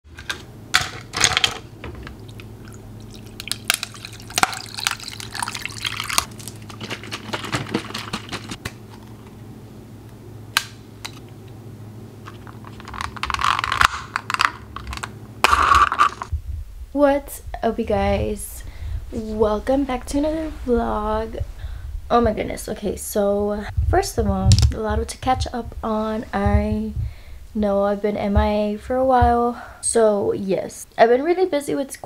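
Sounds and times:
low steady hum: 0.1s - 32.0s.

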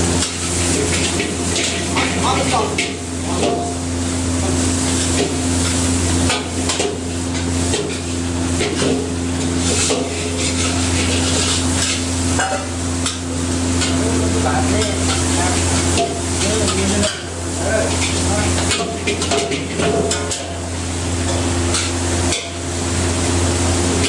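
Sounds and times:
rice sizzling in a wok: 0.0s - 24.0s
metal ladle scraping wok: 4.8s - 22.7s.

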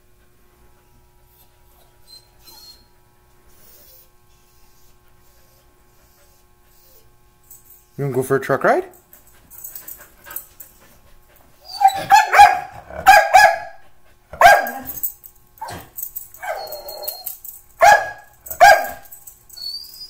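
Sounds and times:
dog barking: 11.8s - 13.8s, 14.4s - 15.0s, 17.8s - 19.1s.

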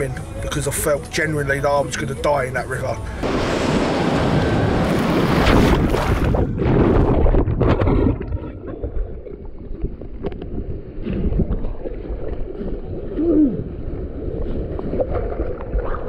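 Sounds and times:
river water rushing: 3.1s - 5.8s
wind on microphone: 3.2s - 16.0s.

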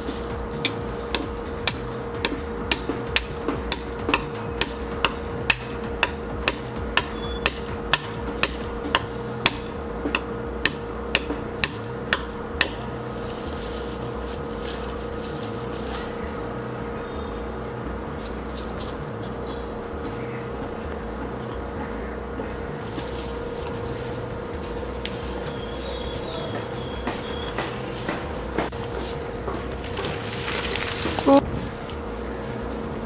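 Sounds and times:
hammer hitting nail: 0.6s - 12.8s.

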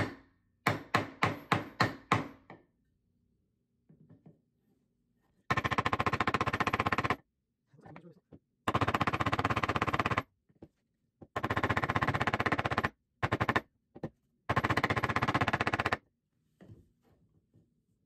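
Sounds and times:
hammer striking wooden block: 0.0s - 2.7s.

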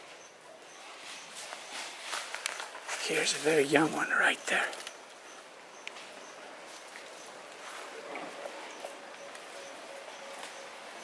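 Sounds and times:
footsteps in dry leaves: 0.8s - 4.0s.

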